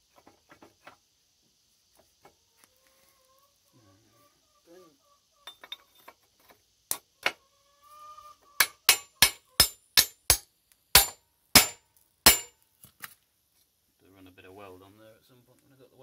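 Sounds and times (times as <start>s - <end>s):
hammer striking steel: 8.6s - 12.5s.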